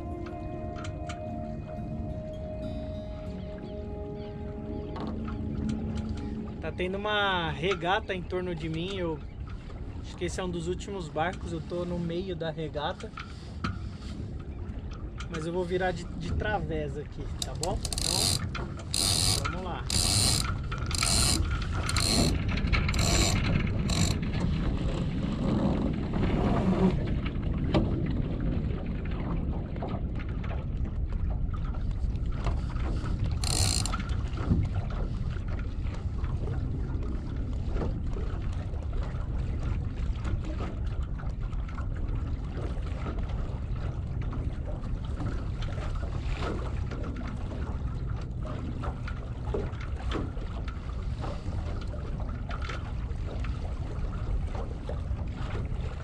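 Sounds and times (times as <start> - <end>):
water running along a boat hull: 0.0 - 56.0
wind noise on microphone: 17.3 - 38.1
short rattling clicks: 17.4 - 24.2, 33.4 - 34.0.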